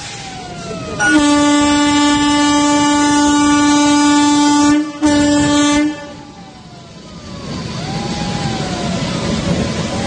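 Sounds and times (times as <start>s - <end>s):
train rumble: 0.0s - 10.0s
locomotive horn blasts: 1.0s - 6.2s.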